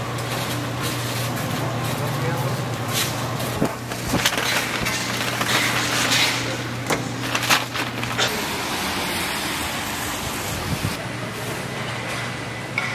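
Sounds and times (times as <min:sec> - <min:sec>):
fried food clattering into paper bag: 0:03.6 - 0:08.5.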